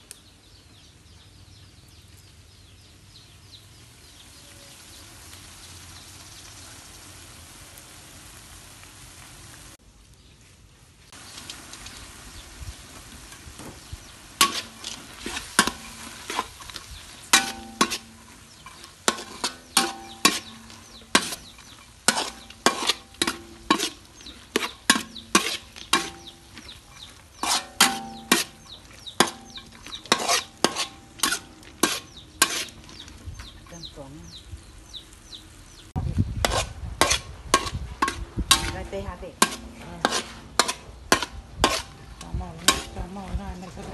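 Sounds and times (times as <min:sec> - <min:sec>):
food sizzling in a wok: 0:03.3 - 0:09.8, 0:11.0 - 0:43.9
metal spatula scraping wok: 0:13.3 - 0:34.0, 0:36.4 - 0:43.9.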